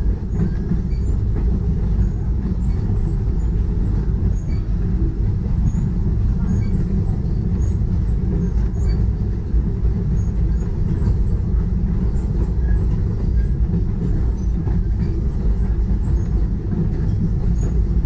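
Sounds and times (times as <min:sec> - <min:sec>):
steam train rumbling: 0:00.0 - 0:18.0.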